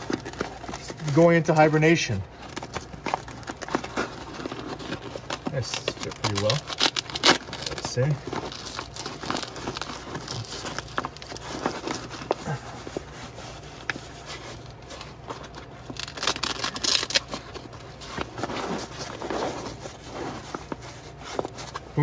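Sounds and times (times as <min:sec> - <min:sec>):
small scratches and clicks: 0:02.7 - 0:12.4.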